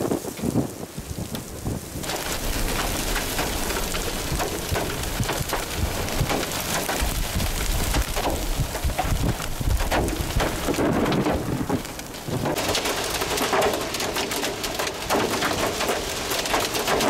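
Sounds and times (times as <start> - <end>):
hailstone impacts: 0.0 - 17.0
heavy rain hissing: 0.0 - 17.0
low rumble: 2.0 - 12.6.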